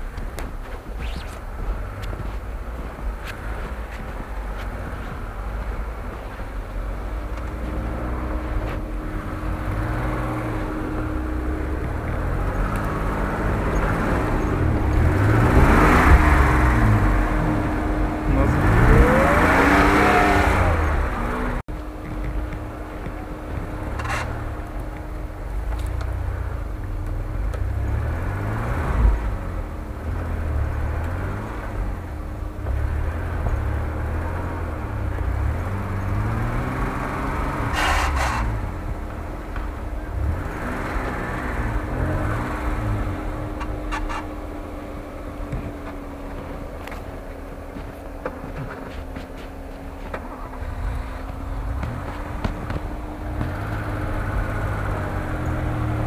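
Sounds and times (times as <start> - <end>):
engine revving under load: 1.0 - 56.0.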